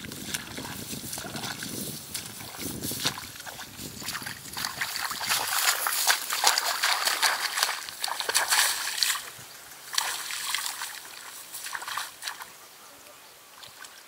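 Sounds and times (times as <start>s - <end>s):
footsteps wading through water and mud: 0.0s - 12.6s, 13.5s - 14.0s.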